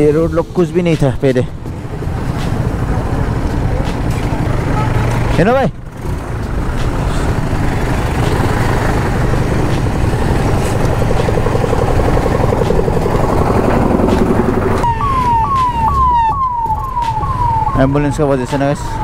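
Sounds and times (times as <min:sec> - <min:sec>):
road traffic noise: 0:00.0 - 0:19.0
ambulance siren: 0:10.6 - 0:19.0.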